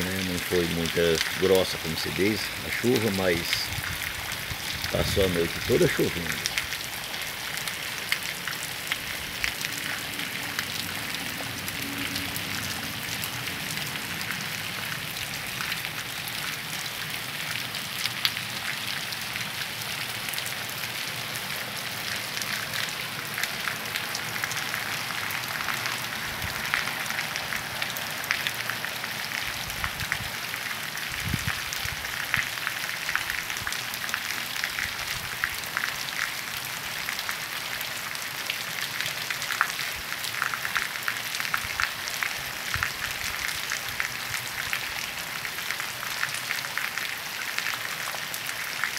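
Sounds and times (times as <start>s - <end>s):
light rain on pavement: 0.0s - 48.9s
raindrops ticking: 0.1s - 21.1s.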